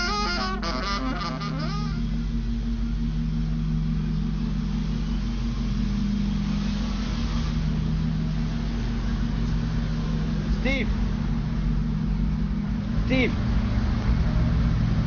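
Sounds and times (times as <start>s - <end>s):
vehicle engine drone inside cabin: 0.0s - 15.0s.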